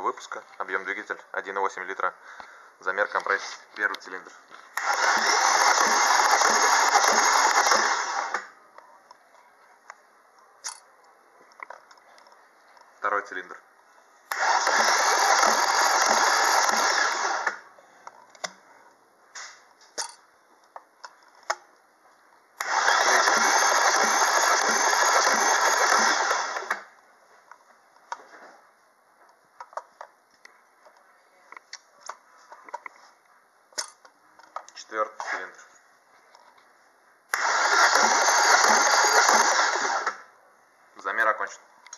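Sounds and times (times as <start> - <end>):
starter motor cranking engine: 4.8 - 8.5, 14.3 - 17.6, 22.6 - 26.9, 37.3 - 40.2.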